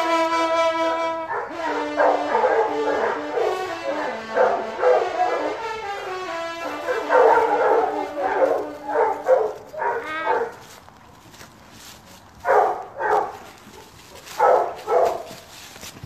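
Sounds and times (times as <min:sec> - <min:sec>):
hunting horn note: 0:00.0 - 0:10.4
hounds baying: 0:01.2 - 0:10.7, 0:12.4 - 0:15.4.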